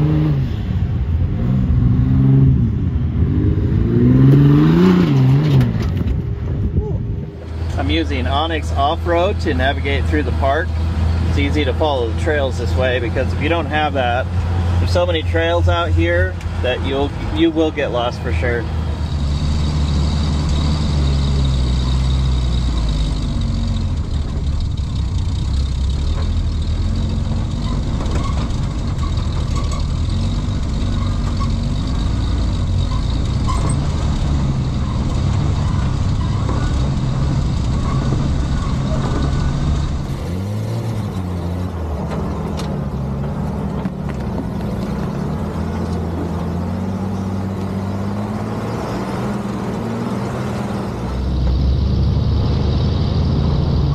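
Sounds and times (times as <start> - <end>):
truck engine running under load: 18.6 - 48.4.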